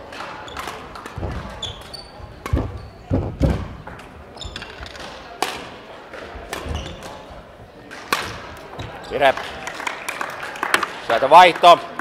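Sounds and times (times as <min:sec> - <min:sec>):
racket hitting shuttlecock: 0:00.0 - 0:07.3, 0:07.9 - 0:09.6
shoes squeaking on floor: 0:00.3 - 0:05.2, 0:06.6 - 0:07.4, 0:08.7 - 0:09.3
heavy thudding footsteps: 0:02.5 - 0:04.0.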